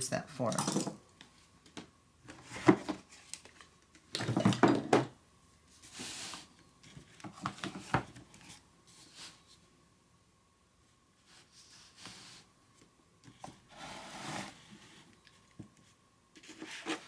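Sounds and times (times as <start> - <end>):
knocks and clatters on tabletop: 4.2 - 5.2.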